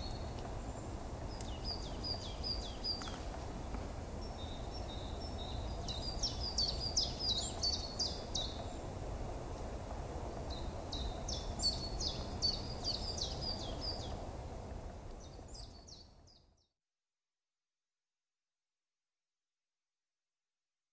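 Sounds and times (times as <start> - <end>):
songbird chirping: 0.0 - 8.9, 10.4 - 14.2, 15.1 - 16.7.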